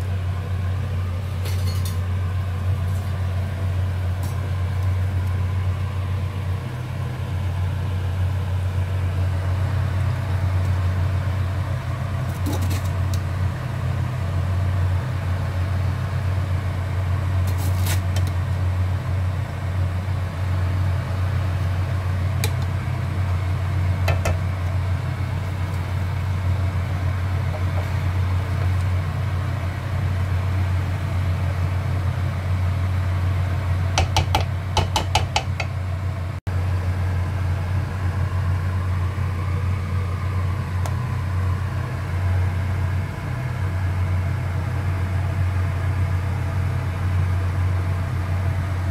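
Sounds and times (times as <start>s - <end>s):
low mechanical hum: 0.0s - 48.9s
wooden spoon clicking on metal pot: 34.0s - 35.7s.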